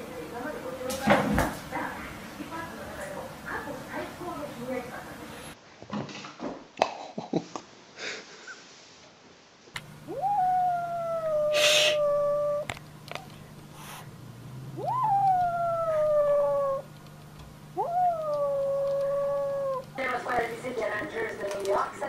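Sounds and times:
kitten yowling: 10.0 - 12.7, 14.6 - 16.9, 17.8 - 20.0.

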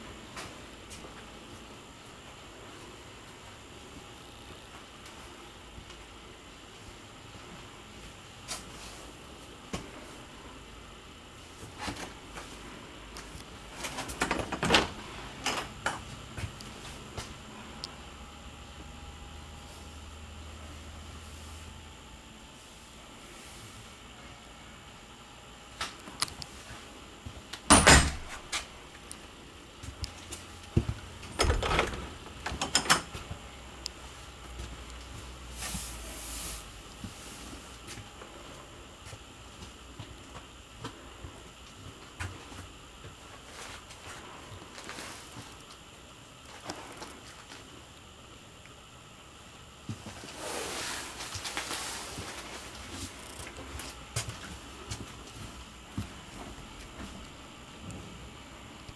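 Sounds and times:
doors knocking and rattling: 31.4 - 33.0.

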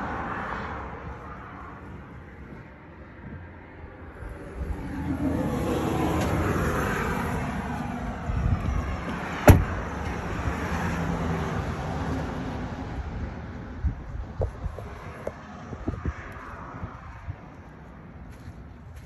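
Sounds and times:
car door shutting: 9.4 - 9.8.

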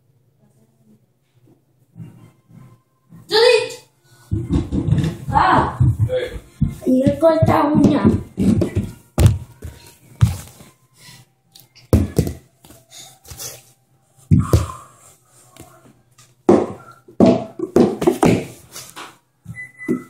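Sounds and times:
plastic bottles landing on floor: 16.5 - 18.6.

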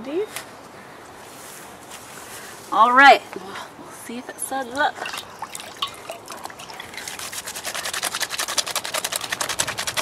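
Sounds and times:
hands rubbing plants in water: 5.0 - 10.0.

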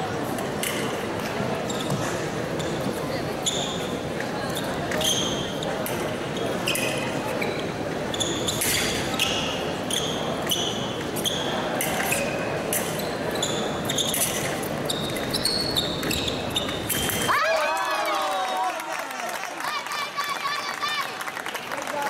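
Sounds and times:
murmur of arena crowd: 0.0 - 22.0
shoes squeaking on floor: 1.6 - 17.3.

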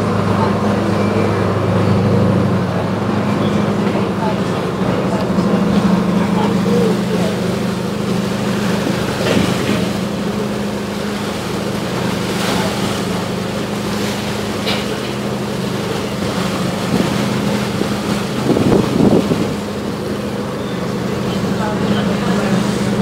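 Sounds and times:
diesel engine drone: 0.0 - 23.0
water rushing past hull: 0.0 - 23.0
wind on microphone: 16.9 - 19.8.

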